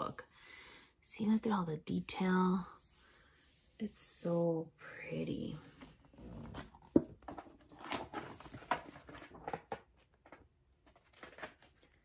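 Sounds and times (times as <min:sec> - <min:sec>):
book pages rustling: 0:05.7 - 0:12.0.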